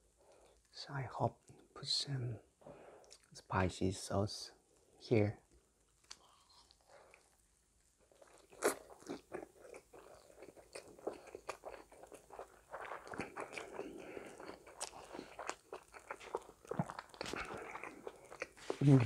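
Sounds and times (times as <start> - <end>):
close chewing with wet mouth sounds: 5.9 - 19.0.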